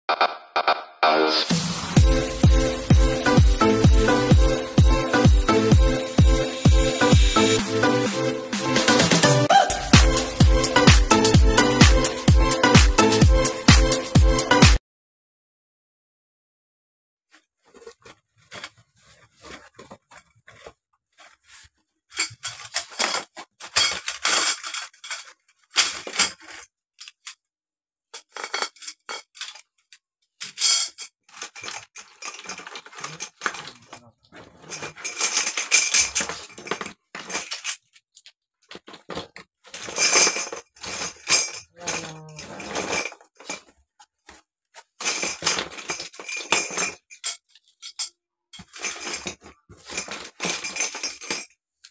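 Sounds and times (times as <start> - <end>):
cardboard and plastic rustling: 17.3 - 27.4, 28.1 - 47.9, 48.6 - 51.9
plastic and metal clinks: 22.1 - 27.4, 28.1 - 43.8, 44.8 - 51.9.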